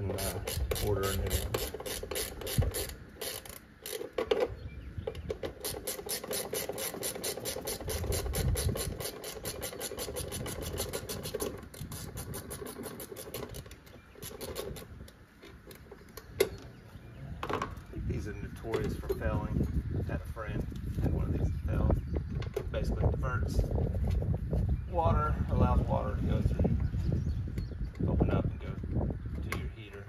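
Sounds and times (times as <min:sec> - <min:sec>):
socket ratchet clicking: 0:00.2 - 0:04.5.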